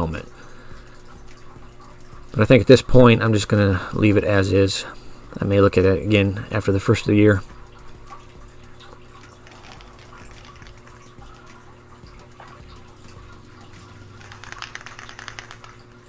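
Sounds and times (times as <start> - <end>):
spray can mixing ball rattling: 9.4 - 11.4, 14.1 - 16.0
spray paint can hissing: 14.2 - 15.8.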